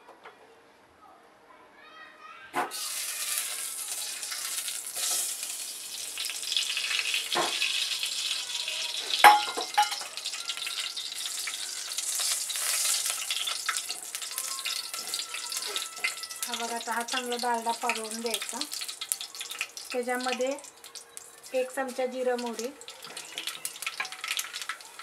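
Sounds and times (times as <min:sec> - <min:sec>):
fat sizzling in a pot: 0:02.6 - 0:25.0
utensil knocking against pot: 0:09.2 - 0:10.0.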